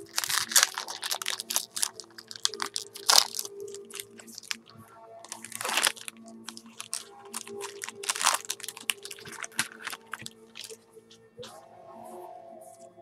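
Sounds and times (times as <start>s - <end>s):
foil wrapper tearing and crumpling: 0.0s - 4.7s, 5.3s - 10.8s.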